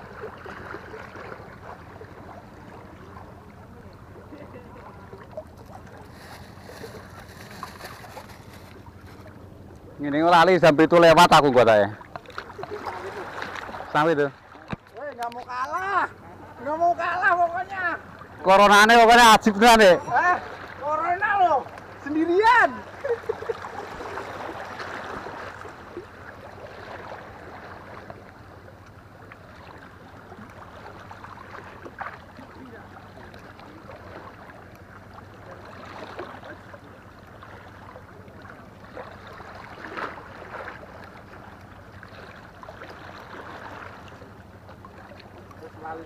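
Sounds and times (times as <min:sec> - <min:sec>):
sea water washing against rocks: 0:05.4 - 0:09.5.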